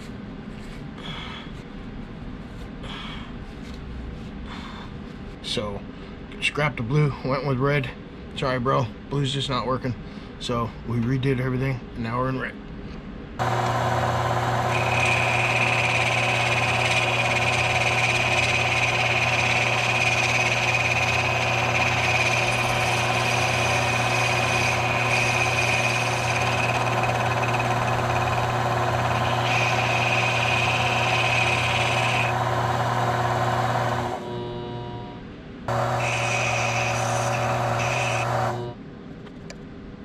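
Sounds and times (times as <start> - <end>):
lathe motor humming and whining: 13.4 - 38.8.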